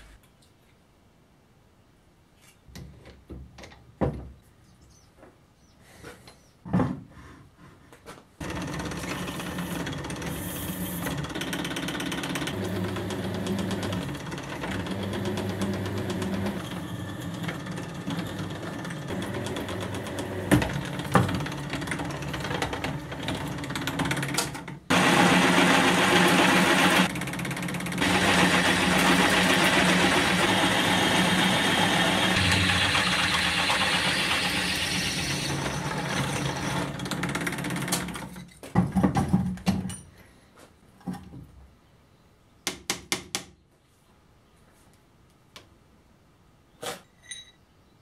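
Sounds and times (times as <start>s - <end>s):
drill press drilling steel: 8.4s - 22.0s, 24.9s - 37.4s
metal tools clinking: 47.0s - 47.6s.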